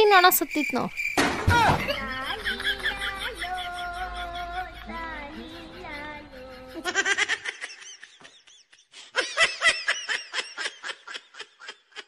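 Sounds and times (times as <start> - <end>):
laughter sound effect: 1.7 - 12.0.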